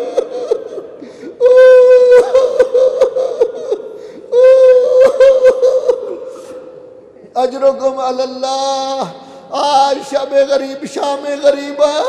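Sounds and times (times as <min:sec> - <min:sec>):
man weeping aloud: 0:00.0 - 0:06.7.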